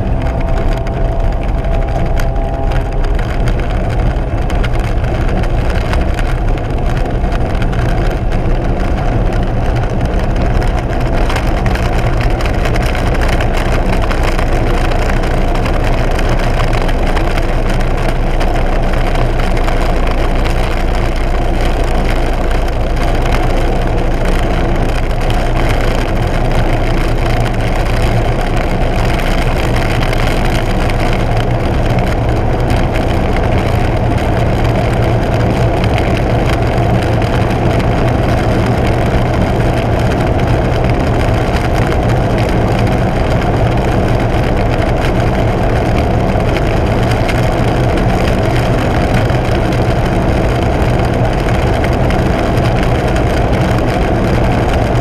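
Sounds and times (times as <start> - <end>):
rush of air: 0.0 - 7.5
turboprop engine and propeller: 0.0 - 55.0.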